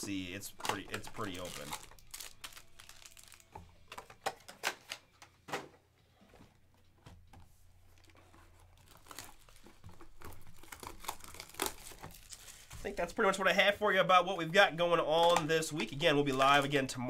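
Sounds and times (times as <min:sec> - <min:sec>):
cardboard packaging crinkling: 0:00.0 - 0:05.2, 0:07.9 - 0:13.1.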